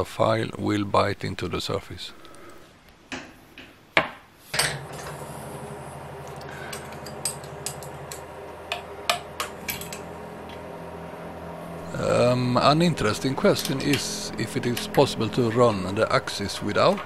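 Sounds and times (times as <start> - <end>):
steady low hum: 4.4 - 17.0.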